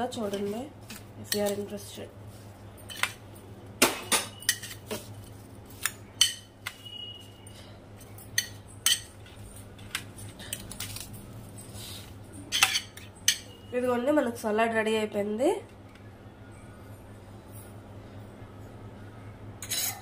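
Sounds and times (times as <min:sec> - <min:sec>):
metal spoon clinking glass bowl: 0:04.1 - 0:04.8, 0:08.0 - 0:09.2, 0:12.5 - 0:13.6.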